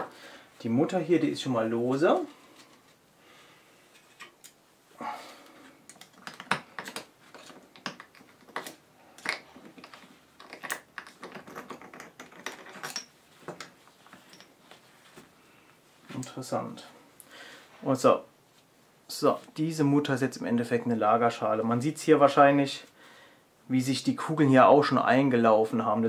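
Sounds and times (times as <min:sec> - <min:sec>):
metal nut clicking and rattling: 0:05.9 - 0:14.6.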